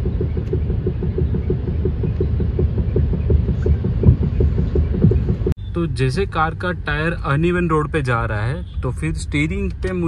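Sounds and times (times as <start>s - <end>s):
suspension metallic knocking: 0.0s - 5.6s
low road rumble: 0.0s - 10.0s.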